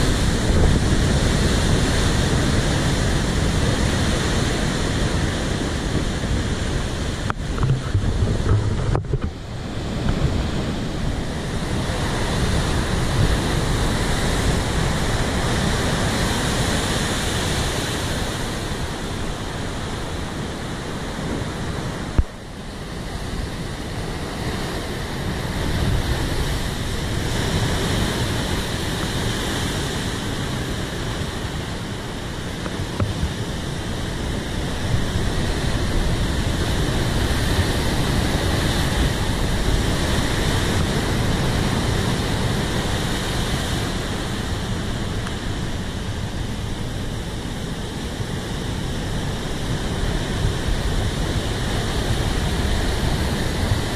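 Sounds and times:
waves crashing on rocks: 0.0s - 53.9s.

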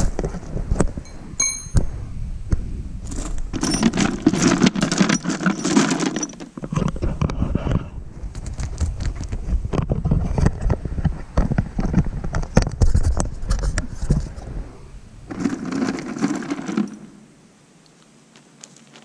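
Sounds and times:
metal bolts rattling: 3.5s - 6.6s.

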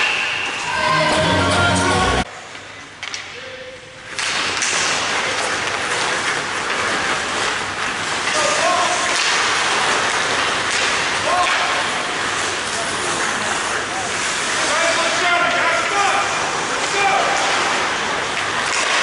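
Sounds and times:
arena music: 0.7s - 2.3s
skates scraping ice: 4.1s - 19.0s.

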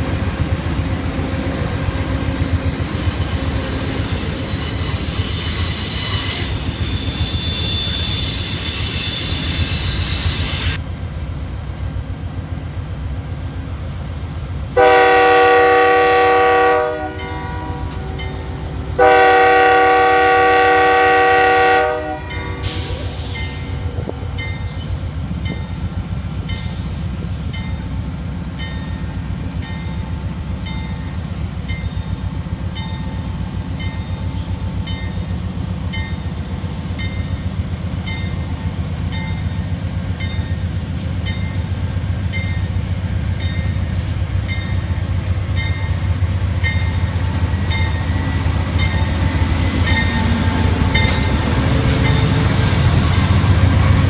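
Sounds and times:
locomotive engine rumble: 10.4s - 54.0s.

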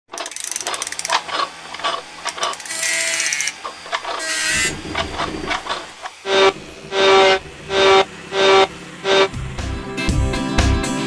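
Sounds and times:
ratcheting clicks: 0.1s - 6.1s
mechanical clacks: 0.1s - 9.4s
mechanical whir: 0.2s - 9.6s.

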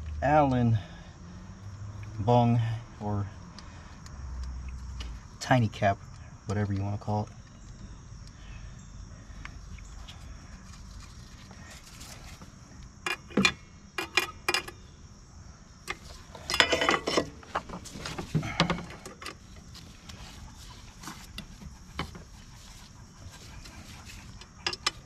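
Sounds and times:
metal hand tools clinking: 15.9s - 17.7s
metallic clatter: 15.9s - 19.4s.

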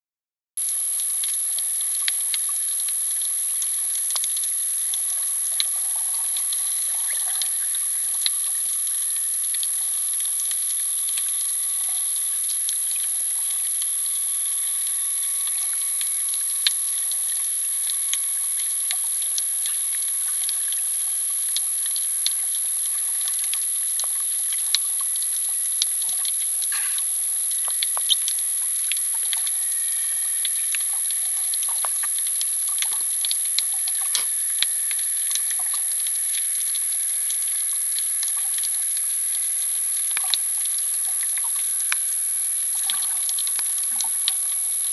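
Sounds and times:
sharp underwater clicks and crackles: 0.6s - 44.9s
underwater hiss: 26.1s - 27.9s, 33.9s - 40.3s.

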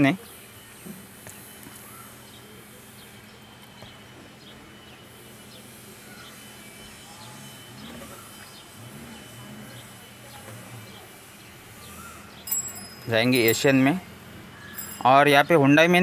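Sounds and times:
bird chirps: 0.1s - 16.0s.

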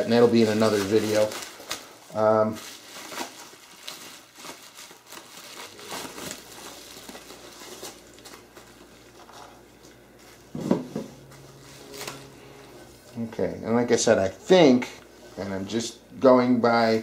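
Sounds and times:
bubble wrap rustling and crinkling: 0.0s - 10.6s, 11.2s - 13.0s.

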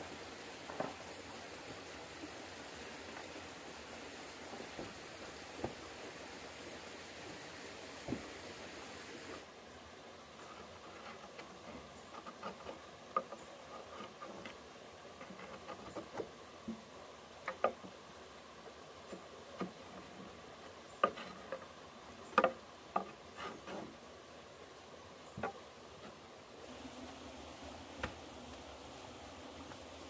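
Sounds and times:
metal tool tapping and scraping: 21.0s - 21.7s.

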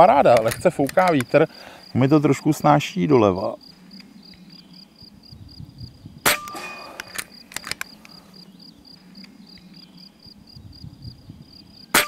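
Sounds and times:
metallic clicks: 0.3s - 1.4s, 6.4s - 8.2s.

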